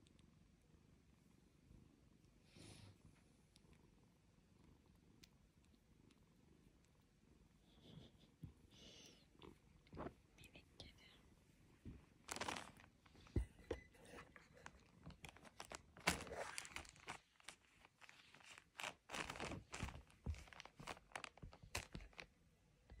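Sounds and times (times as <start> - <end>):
rustling and crinkling: 11.5 - 23.0.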